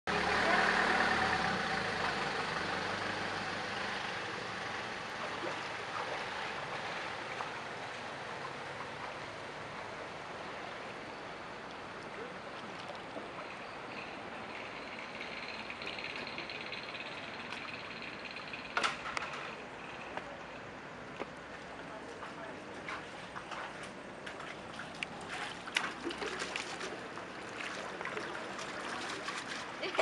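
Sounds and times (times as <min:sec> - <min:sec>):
floodwater rushing: 0:00.1 - 0:30.0
truck engines running: 0:00.1 - 0:30.0.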